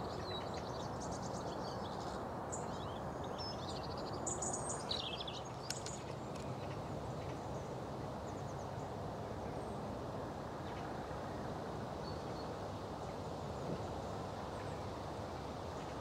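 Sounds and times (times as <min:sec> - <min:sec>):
small birds chirping: 0:00.0 - 0:09.8.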